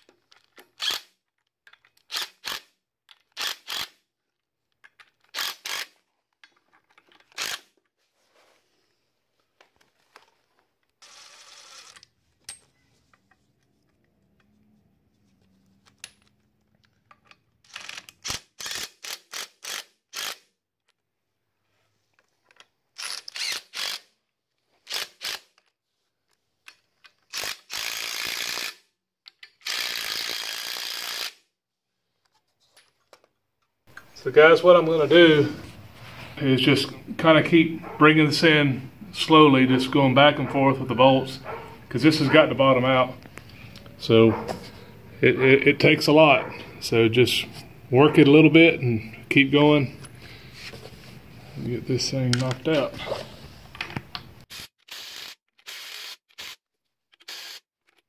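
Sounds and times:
impact driver running on bolts: 54.5 - 56.6, 57.2 - 57.6.

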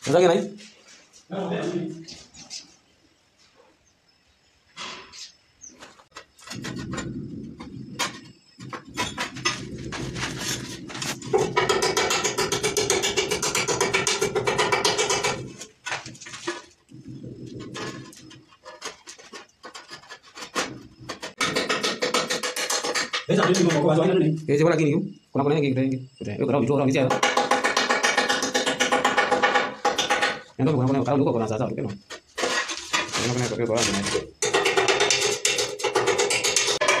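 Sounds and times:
chisel chipping ceramic tile: 11.3 - 15.6, 18.7 - 23.9, 27.1 - 30.4, 33.8 - 37.0.

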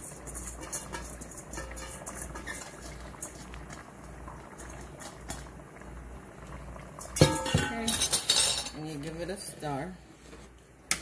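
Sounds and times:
rice patters from metal bowl: 0.0 - 5.6
pot bubbling at the boil: 0.0 - 11.0.

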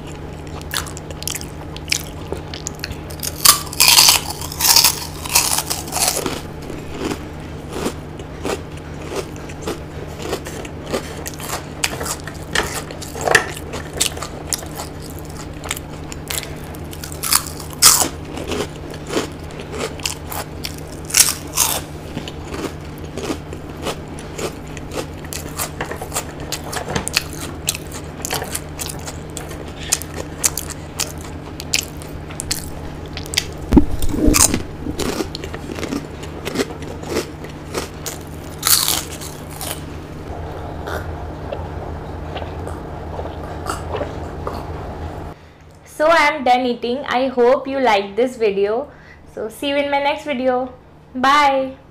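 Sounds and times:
chewing and mouth sounds: 0.0 - 39.9, 40.8 - 44.8
steady low hum: 0.0 - 51.9
crunchy bites of fried food: 0.2 - 39.9.

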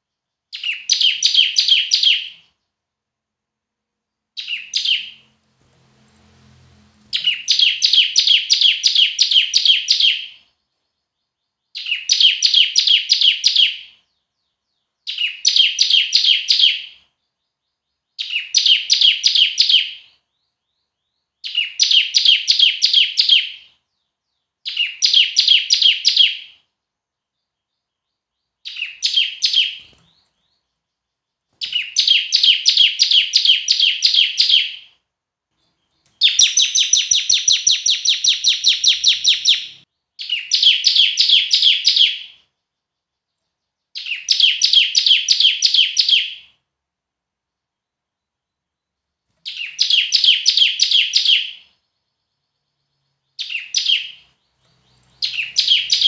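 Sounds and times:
bird singing sharp chip notes: 49.4 - 56.0.

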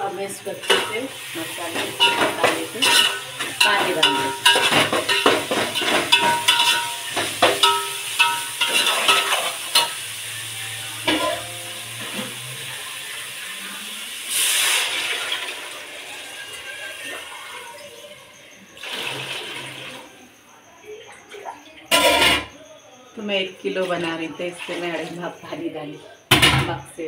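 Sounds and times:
spices sizzling in oil: 0.0 - 18.1
metal spoon clanking on pot: 0.4 - 10.0, 11.0 - 12.3
loud hiss: 11.8 - 15.4.

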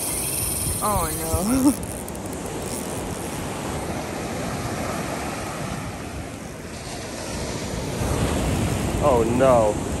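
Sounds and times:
wind on microphone: 0.0 - 10.0
surf breaking on beach: 3.4 - 10.0.

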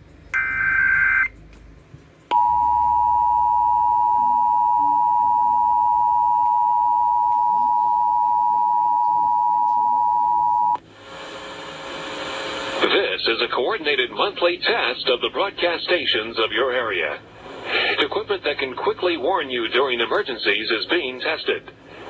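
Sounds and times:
two-tone alert signal: 0.4 - 1.3, 2.3 - 10.8.

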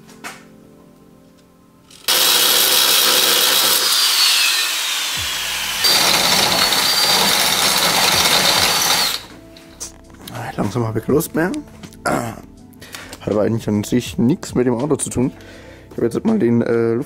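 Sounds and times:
power grinder grinding metal: 2.0 - 9.3.

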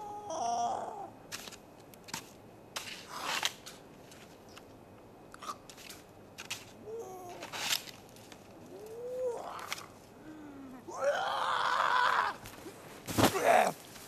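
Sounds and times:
person crying out: 0.0 - 1.1, 8.7 - 12.4, 13.3 - 13.8.

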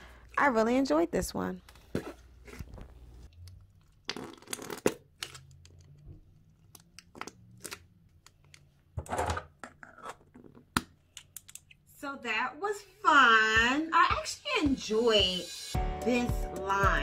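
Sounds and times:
slime squishing and crackling: 3.9 - 5.1.

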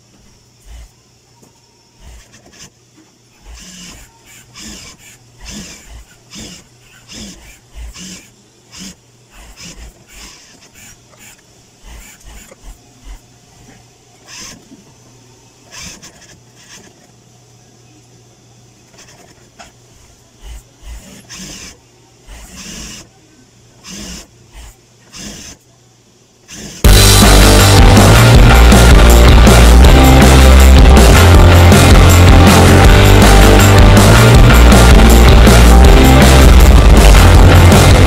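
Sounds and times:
motor hum: 0.0 - 38.0
sewing machine stitching: 0.6 - 1.0, 2.0 - 2.7, 3.4 - 13.2, 14.2 - 14.8, 15.6 - 17.1, 18.9 - 19.5, 20.4 - 23.1, 23.8 - 25.6, 26.5 - 26.9.

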